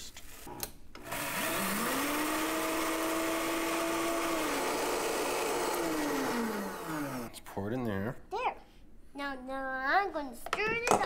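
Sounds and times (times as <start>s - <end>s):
electric chopper motor whining: 1.0s - 7.3s.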